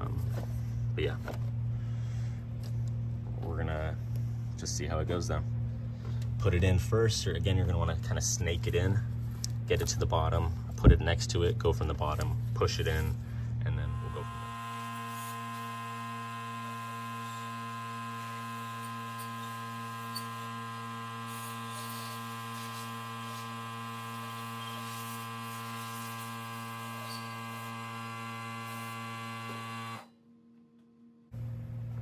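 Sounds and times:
electric air compressor humming: 12.0s - 30.1s.

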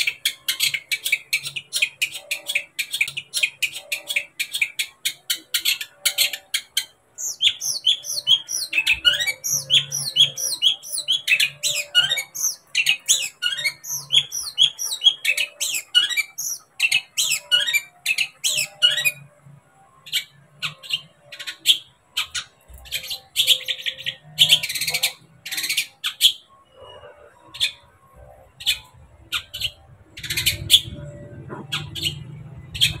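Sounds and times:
shrike singing whistled notes: 0.0s - 19.3s
harsh rasping bird calls: 0.0s - 19.4s, 20.0s - 33.0s.

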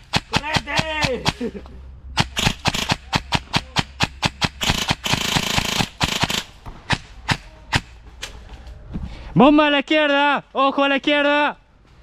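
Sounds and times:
airsoft guns firing: 0.0s - 1.5s, 2.2s - 8.0s.

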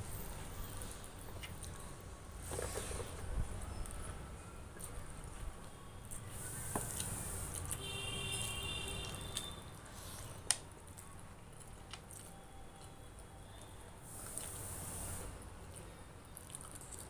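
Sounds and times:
wet chewing and mouth smacks: 15.7s - 17.0s.

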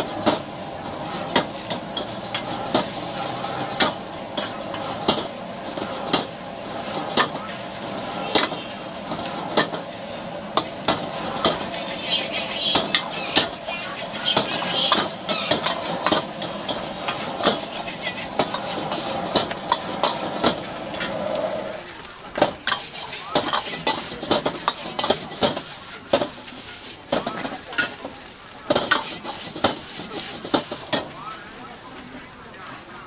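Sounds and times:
food sizzling: 0.0s - 33.0s.

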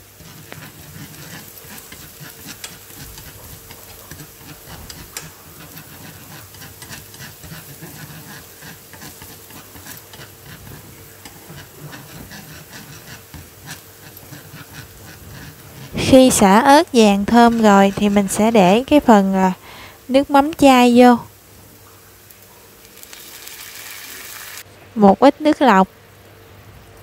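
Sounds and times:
wooden spatula scraping a pan: 0.0s - 19.6s
food sizzling in oil: 0.0s - 24.7s.

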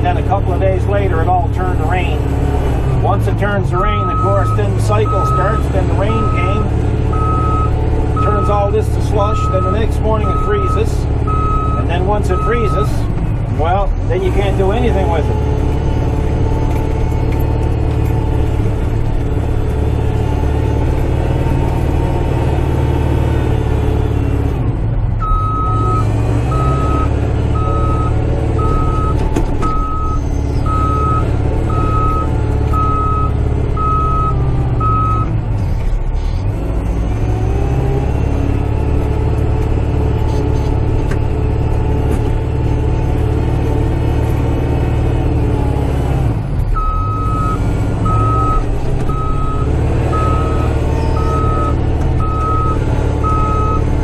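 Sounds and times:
tractor diesel engine running: 0.0s - 54.0s
short electronic beeps: 3.8s - 8.7s, 9.3s - 12.9s, 25.2s - 35.3s, 46.8s - 53.9s.

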